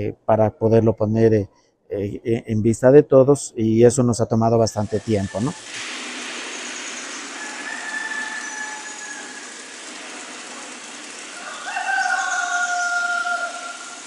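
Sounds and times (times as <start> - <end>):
water hissing: 4.6 - 14.0.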